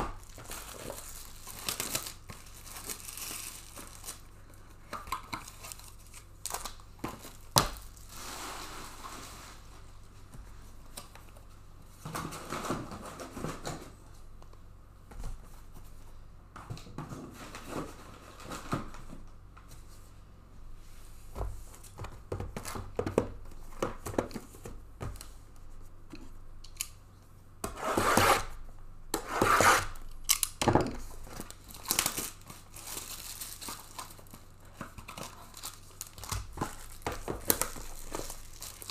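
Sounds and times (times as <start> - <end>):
paper packaging crinkling and tearing: 0.0 - 4.4, 5.0 - 9.6, 31.1 - 38.9.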